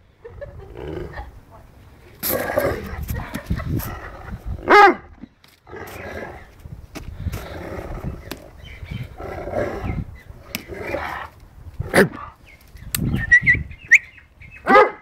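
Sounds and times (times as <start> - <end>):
dog growling: 2.3 - 4.7, 9.1 - 10.1
dog barking: 4.7 - 5.1, 14.7 - 15.0.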